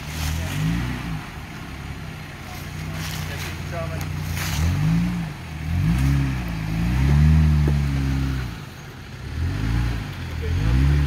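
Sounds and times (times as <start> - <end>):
pickup engine revving: 0.0 - 11.0.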